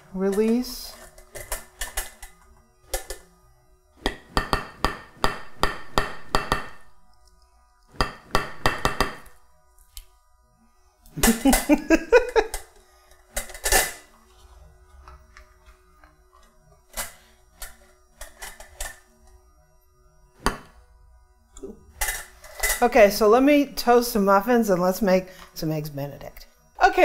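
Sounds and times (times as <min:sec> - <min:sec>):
metal cups tapping on plate: 0:04.1 - 0:06.8, 0:08.0 - 0:09.3.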